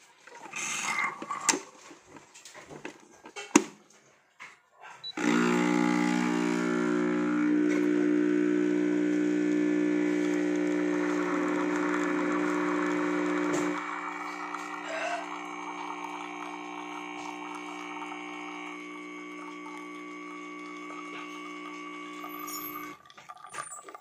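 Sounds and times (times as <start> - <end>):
espresso machine pump hum: 5.1 - 23.5.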